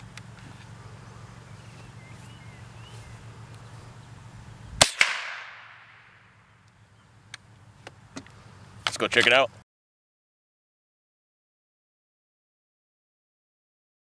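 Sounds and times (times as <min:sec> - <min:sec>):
rifle shot: 0:04.8 - 0:06.2
sharp crack with ring: 0:04.8 - 0:06.2.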